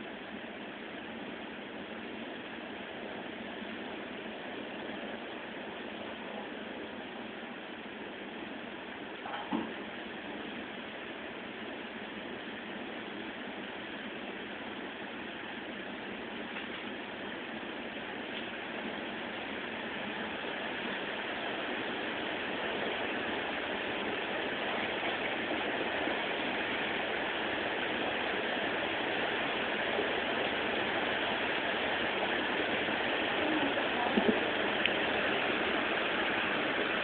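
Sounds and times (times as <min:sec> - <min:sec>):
heavy rain rushing: 0:12.6 - 0:37.0.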